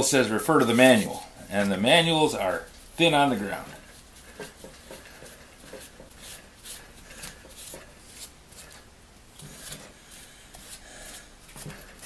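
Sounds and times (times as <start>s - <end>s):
rag rubbing over tool housing: 0.3s - 12.0s.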